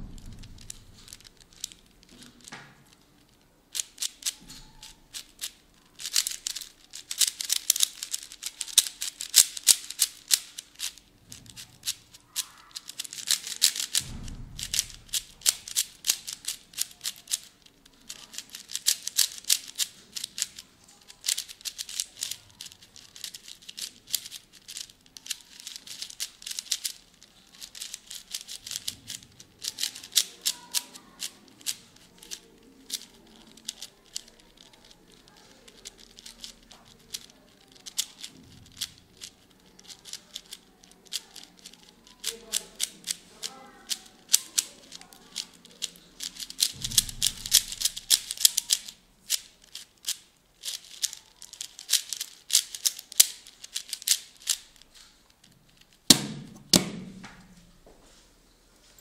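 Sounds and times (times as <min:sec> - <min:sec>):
dull low bump: 0:00.0 - 0:01.4, 0:14.0 - 0:15.4
speed cube clicking: 0:00.2 - 0:54.9, 0:55.7 - 0:57.1.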